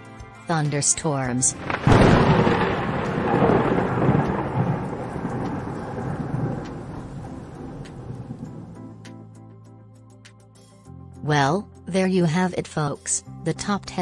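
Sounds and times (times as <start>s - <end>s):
rain falling: 1.5s - 8.8s
thunder crack and rumble: 1.5s - 8.8s.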